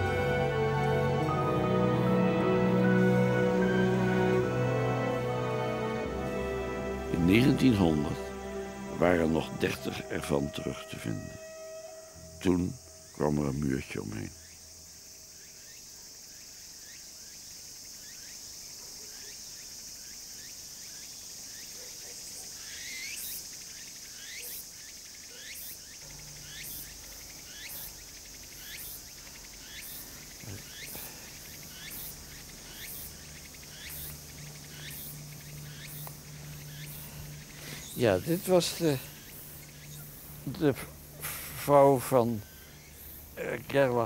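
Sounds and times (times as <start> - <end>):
insects chirring: 0.0 - 44.0.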